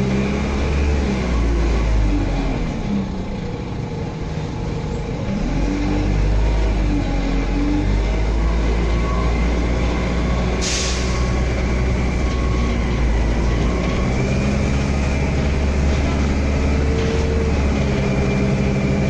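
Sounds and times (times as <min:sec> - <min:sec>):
bus engine and road rumble: 0:00.0 - 0:19.0
short hiss: 0:10.6 - 0:11.3.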